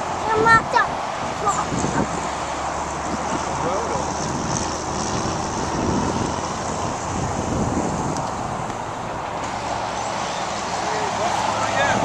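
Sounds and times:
wind on microphone: 0.0 - 10.8
distant highway traffic: 0.0 - 12.0.

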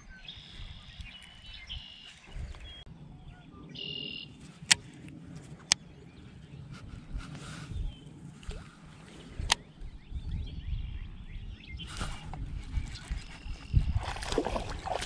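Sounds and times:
birds whistling calls: 0.0 - 4.4.

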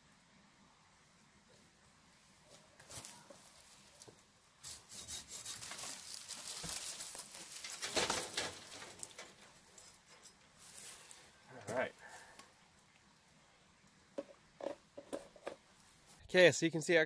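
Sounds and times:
branches rustling and crackling: 1.6 - 13.9, 15.0 - 16.3
tree falling into brush: 5.6 - 9.4.

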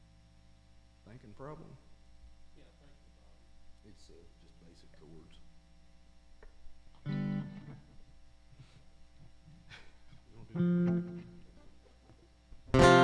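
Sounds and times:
guitar chords: 6.4 - 8.2, 9.2 - 13.0.

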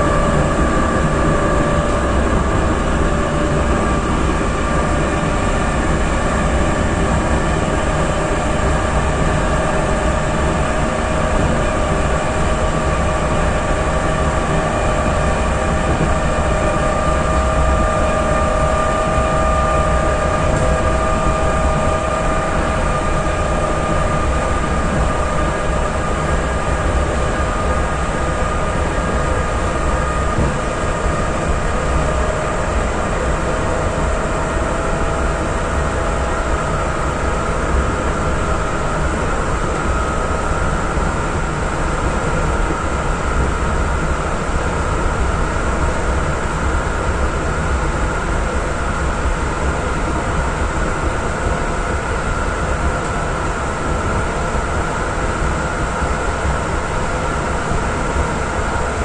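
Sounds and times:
traction motor whine: 0.0 - 59.0
wheels rumbling on rail: 0.0 - 59.0.

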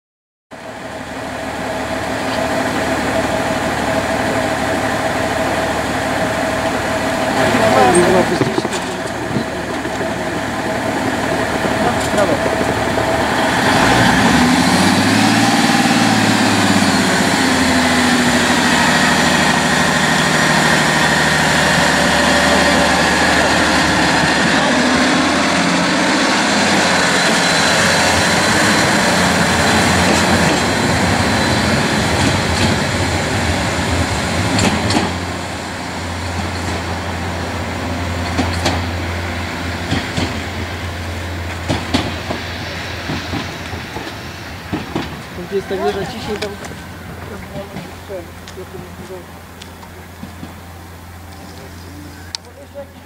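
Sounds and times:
diesel engine running hard: 0.6 - 43.4, 45.3 - 53.0
wheels clicking over rail joints: 7.4 - 15.0, 34.4 - 35.2, 39.8 - 40.7, 41.4 - 50.7.

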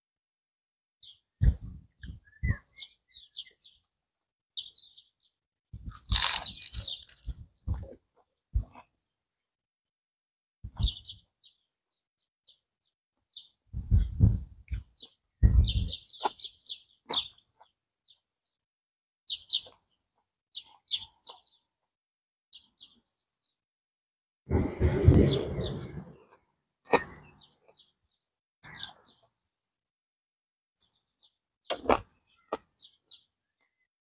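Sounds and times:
small birds chirping: 1.0 - 8.9, 10.7 - 18.6, 19.3 - 23.6, 26.9 - 29.8, 30.8 - 33.9
person eating close to microphone: 5.9 - 7.4.

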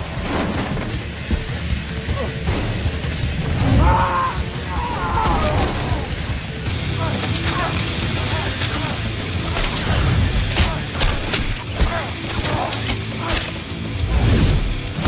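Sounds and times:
dramatic film score: 0.0 - 15.0.

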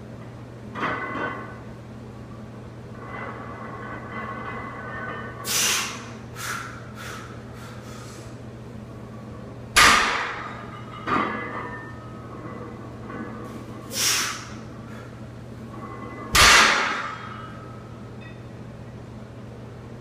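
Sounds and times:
short hissing sounds: 5.4 - 8.4, 13.9 - 14.5.

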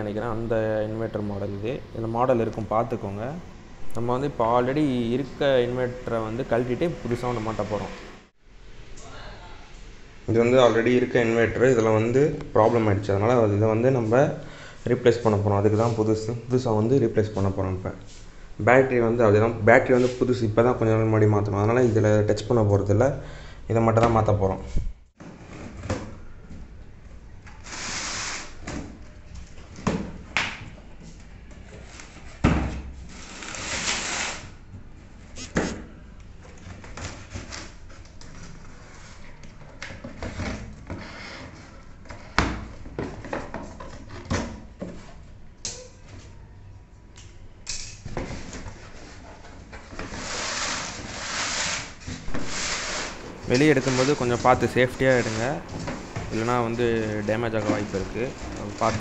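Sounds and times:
packing tape tearing: 33.1 - 34.5.

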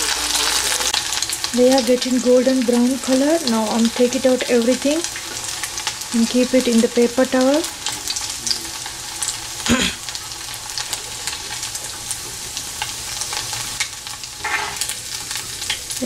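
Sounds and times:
hot oil sizzling in frying pan: 0.0 - 16.0.

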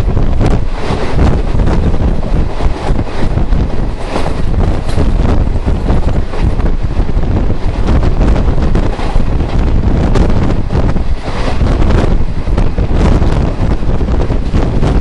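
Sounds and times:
moving train rumble: 0.0 - 15.0
wind buffeting microphone: 0.0 - 15.0.

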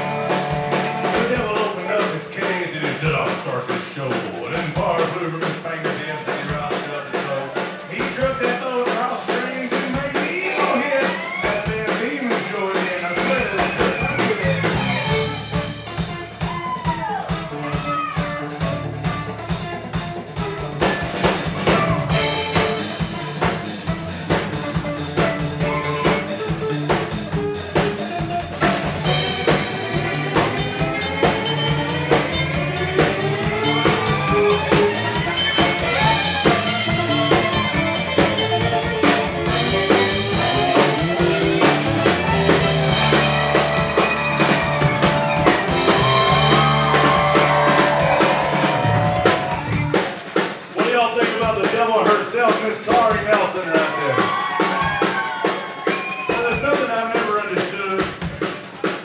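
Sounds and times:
country band playing: 0.0 - 59.0
fiddle with sliding notes: 28.4 - 49.9.

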